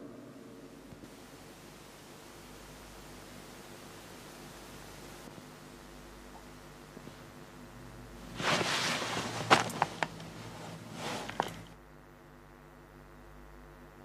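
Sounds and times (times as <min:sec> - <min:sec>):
faint steady hum: 0:00.0 - 0:14.0
cloth rustling: 0:08.1 - 0:11.8.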